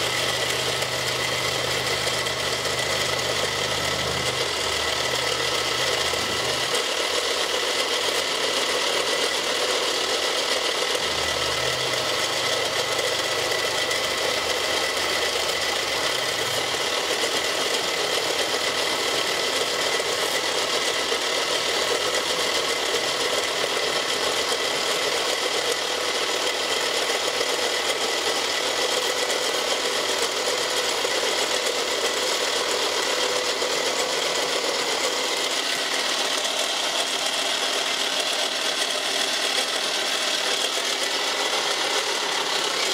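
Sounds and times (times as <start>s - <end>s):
milling machine cutting plastic: 0.0s - 42.9s.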